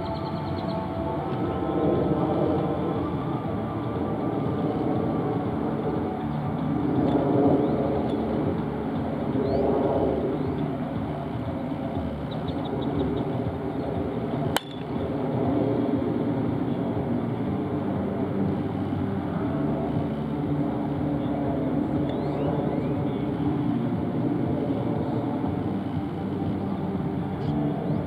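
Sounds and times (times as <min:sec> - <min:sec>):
low background rumble: 0:00.0 - 0:28.0
bat cracking a ball: 0:14.5 - 0:14.9.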